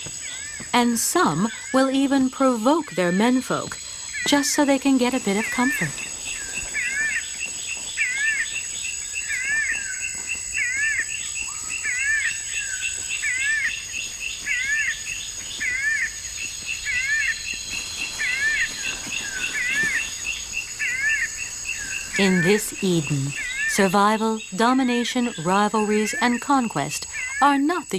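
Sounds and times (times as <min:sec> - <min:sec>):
insects droning and chirping: 0:00.0 - 0:27.9
bird wavering call: 0:16.8 - 0:27.9.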